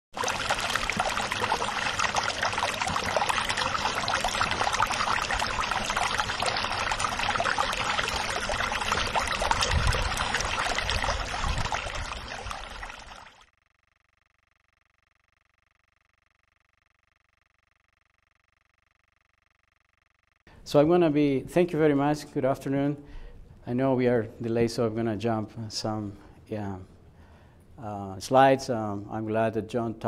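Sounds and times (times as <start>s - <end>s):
running water: 0.1s - 13.5s.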